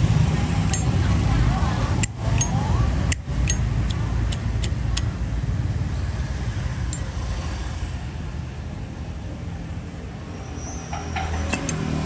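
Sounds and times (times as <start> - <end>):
vehicle engine rumbling: 0.0 - 12.0
metallic lighter clicks: 2.0 - 5.1.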